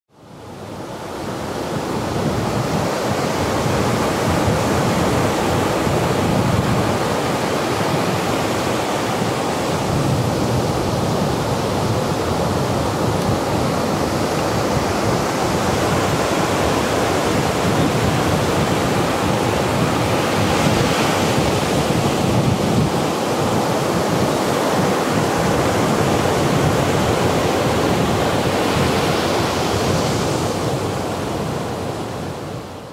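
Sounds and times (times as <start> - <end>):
ocean waves breaking: 0.3 - 32.9
wind buffeting microphone: 0.4 - 32.9.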